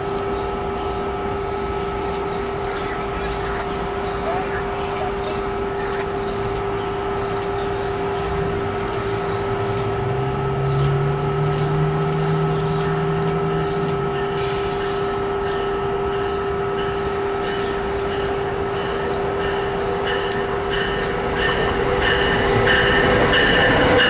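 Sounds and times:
electric locomotive hum and whine: 0.0 - 24.0
lower hum rising in pitch: 7.8 - 14.3.

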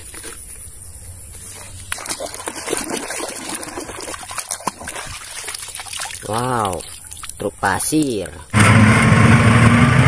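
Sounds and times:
water splashing and trickling: 1.4 - 8.6.

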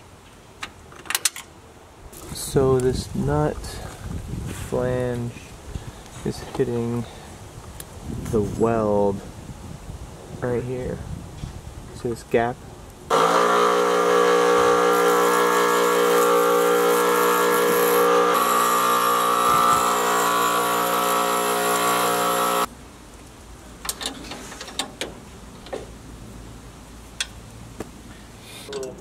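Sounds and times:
bench grinder grinding metal: 13.1 - 22.7.

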